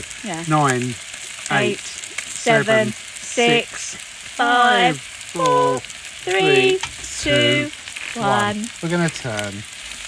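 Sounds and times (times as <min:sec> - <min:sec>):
steaks sizzling on a grill: 0:00.0 - 0:10.0
person counting down: 0:04.4 - 0:08.5.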